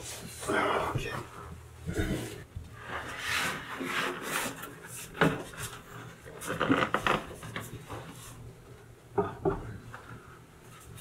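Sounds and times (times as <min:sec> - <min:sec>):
tabletop scraping against wood: 0:02.8 - 0:05.1.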